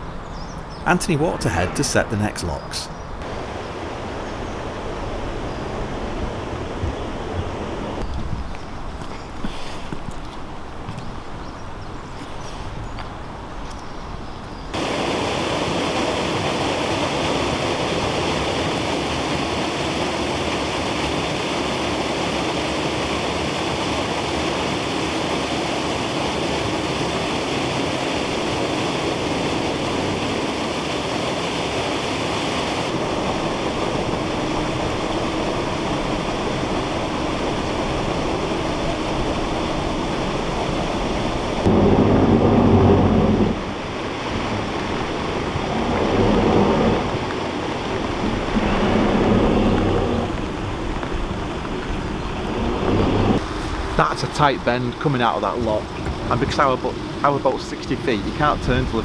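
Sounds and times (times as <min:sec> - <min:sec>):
rushing hiss of falling water: 0:09.4 - 0:10.1, 0:14.8 - 0:59.0
low rumble: 0:41.1 - 0:53.4.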